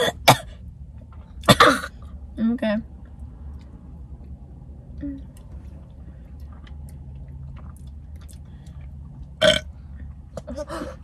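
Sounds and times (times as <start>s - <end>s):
low steady hum: 0.0s - 11.0s
chewing: 5.3s - 10.2s.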